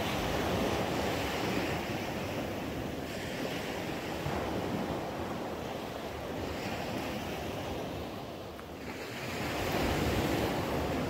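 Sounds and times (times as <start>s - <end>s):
waves washing onto beach: 0.0s - 11.0s
wind on microphone: 0.0s - 11.0s.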